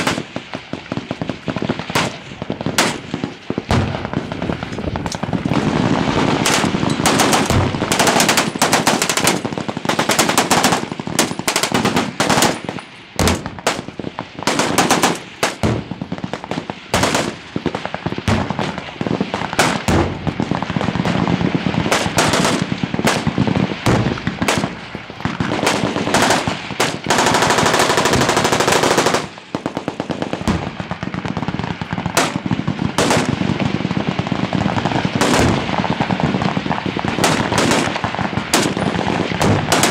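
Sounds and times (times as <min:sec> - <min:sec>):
machine-gun fire: 0:00.0 - 0:39.9.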